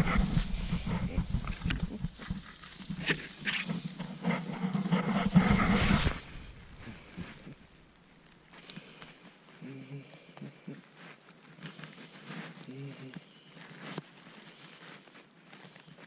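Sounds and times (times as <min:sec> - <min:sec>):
dry leaves crunching: 0:00.1 - 0:16.0
camera handling noise: 0:02.9 - 0:03.7.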